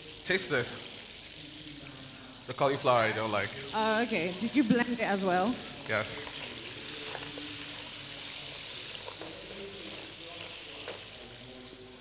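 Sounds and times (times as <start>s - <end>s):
oil sizzling in a frying pan: 0.0s - 12.0s.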